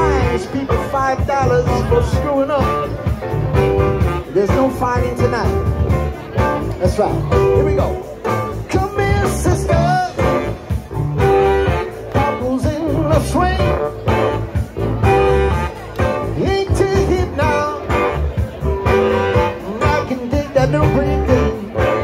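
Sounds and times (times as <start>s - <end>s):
man singing lead vocal: 0.0s - 3.2s, 4.2s - 5.8s, 6.8s - 10.8s, 11.8s - 14.4s, 16.2s - 22.0s
live soul band playing: 0.0s - 22.0s.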